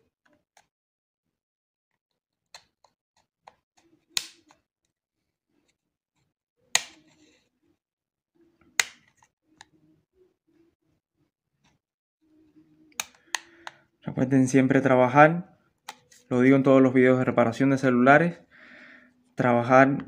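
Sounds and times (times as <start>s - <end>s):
plastic clips snapping loose: 6.7s - 7.0s, 8.8s - 9.2s, 12.9s - 13.8s.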